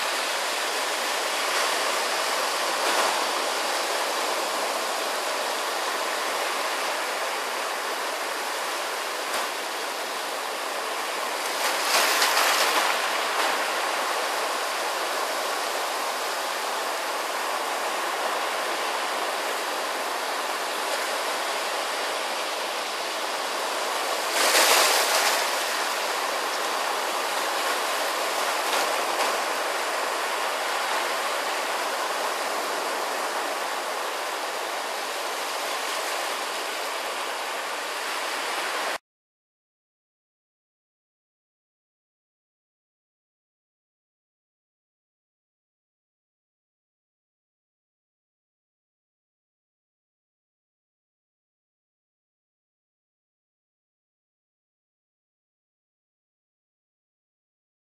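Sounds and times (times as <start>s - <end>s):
surf washing over stones: 0.0s - 39.0s.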